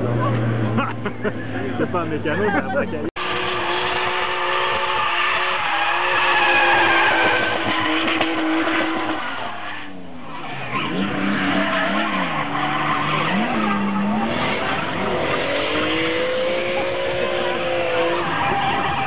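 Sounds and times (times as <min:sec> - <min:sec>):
car engine at high revs: 0:03.2 - 0:19.0
distant car engine revving: 0:10.7 - 0:19.0
tyres screeching: 0:18.2 - 0:19.0.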